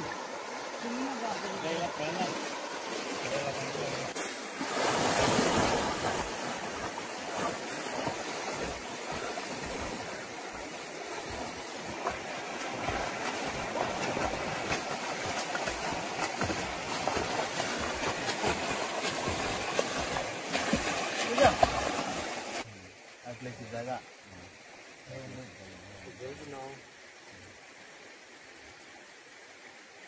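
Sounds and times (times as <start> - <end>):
swimming splashes: 0.0 - 22.7
body splashing into water: 2.2 - 22.6.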